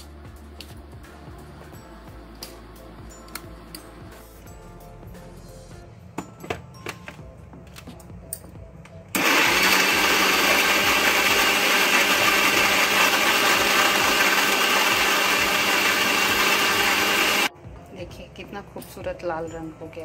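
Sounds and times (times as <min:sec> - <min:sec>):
mixer grinder motor running: 0:09.2 - 0:17.5.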